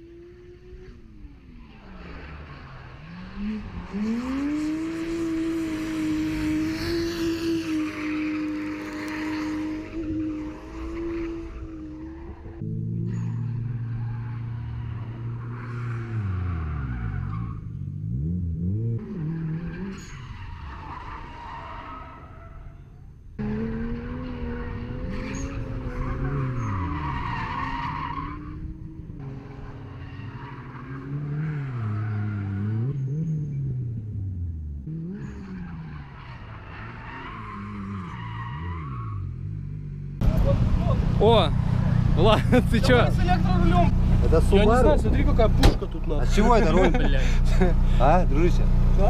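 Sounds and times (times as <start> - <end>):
car engine revving: 0.0 - 22.3, 23.3 - 49.0
tyre squeal: 7.6 - 17.8, 19.0 - 23.1, 23.7 - 28.7.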